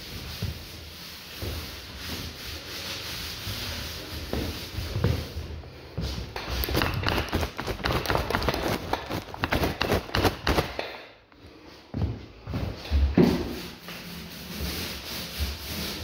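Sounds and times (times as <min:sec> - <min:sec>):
footsteps on wooden floor: 0:04.2 - 0:10.8, 0:11.6 - 0:14.0.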